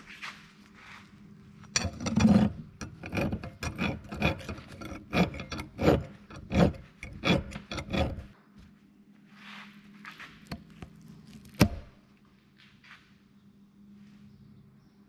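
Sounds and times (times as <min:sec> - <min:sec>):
hand file stroking steel: 0:01.8 - 0:08.3.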